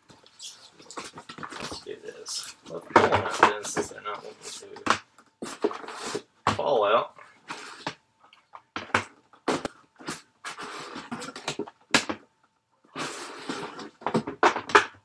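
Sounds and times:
boxes scraping and rustling: 0.4s - 6.3s, 7.2s - 8.0s, 9.5s - 11.6s, 12.9s - 14.4s.

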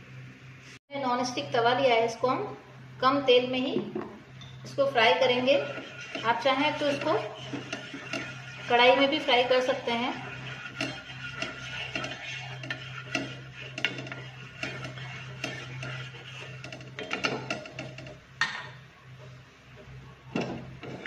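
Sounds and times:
wooden spatula scraping a griddle: 4.7s - 18.3s, 19.2s - 21.0s.

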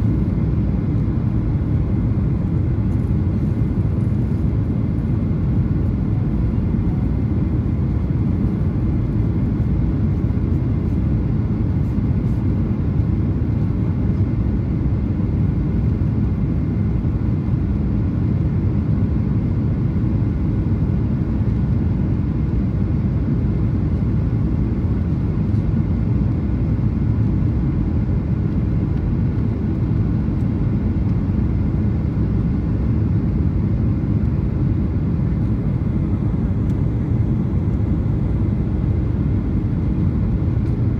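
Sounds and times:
air rushing along fuselage: 0.0s - 40.9s
airplane cabin engine rumble: 0.0s - 40.9s.

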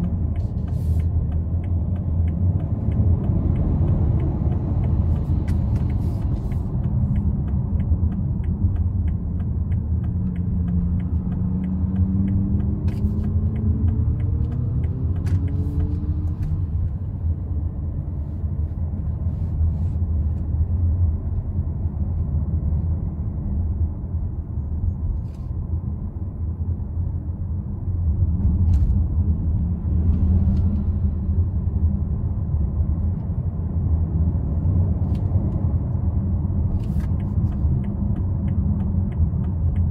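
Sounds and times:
light regular ticking: 0.0s - 17.0s
car engine and tyre rumble: 0.0s - 39.9s.

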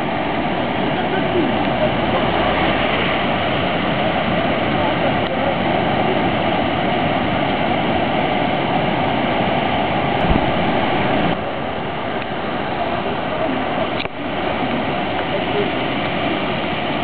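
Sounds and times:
water rushing over a weir: 0.0s - 17.0s
low thump: 10.2s - 10.8s.

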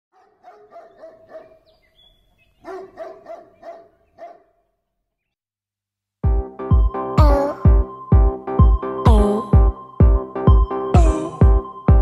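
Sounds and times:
dog barking: 0.1s - 1.8s, 2.6s - 4.8s.

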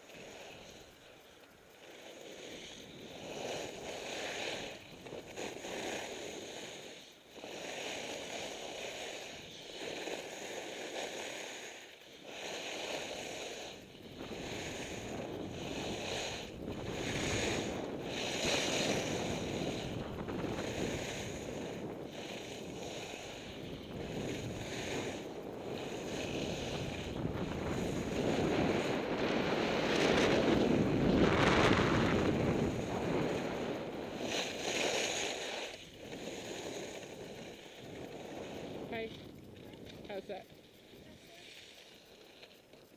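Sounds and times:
skis sliding on snow: 0.0s - 42.9s
wind buffeting microphone: 13.7s - 34.7s, 35.8s - 41.4s.

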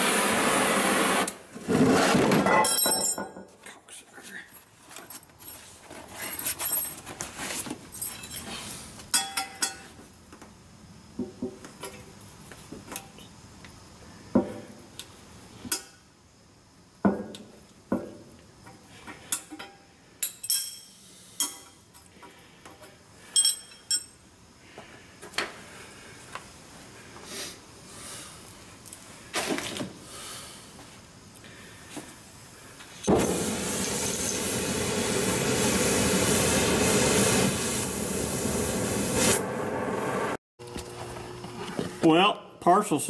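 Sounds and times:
metallic clinks and knocks: 2.5s - 3.5s, 19.3s - 22.0s, 23.3s - 24.2s.

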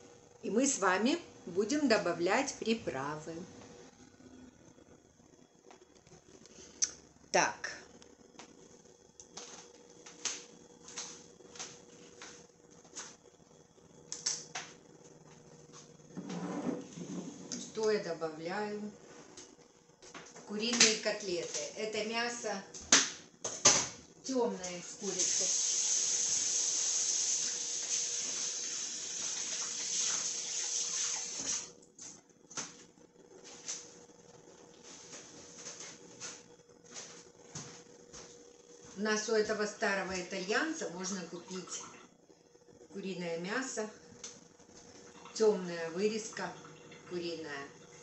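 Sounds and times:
faint steady hum: 0.0s - 48.0s.

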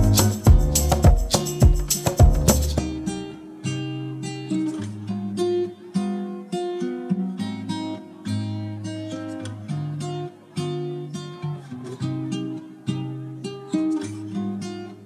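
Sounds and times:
bass line: 0.0s - 3.1s
acoustic guitar melody: 0.0s - 15.0s.

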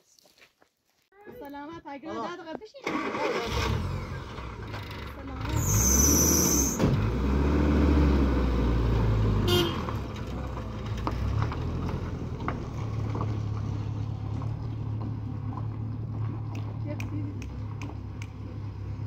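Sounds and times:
truck engine revving: 2.9s - 19.0s
high squeal: 5.5s - 6.9s
truck horn toot: 9.4s - 10.0s.

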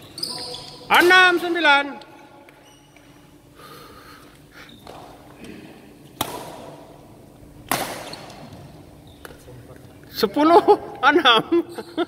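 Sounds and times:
racket hitting shuttlecock: 6.1s - 7.0s, 7.6s - 9.4s.

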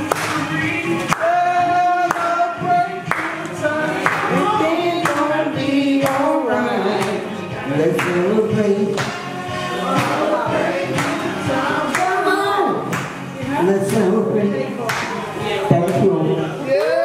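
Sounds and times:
woman singing into microphone: 9.5s - 15.7s.

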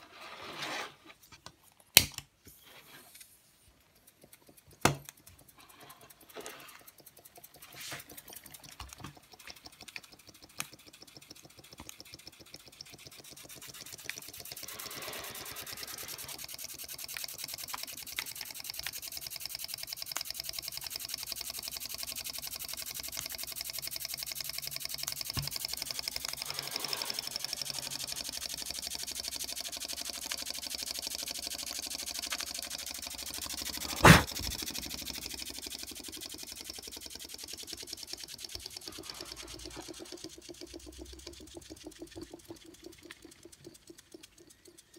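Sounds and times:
steam engine exhaust hiss: 13.7s - 18.8s, 25.4s - 28.8s, 29.4s - 36.4s
sharp knock: 34.0s - 34.3s.

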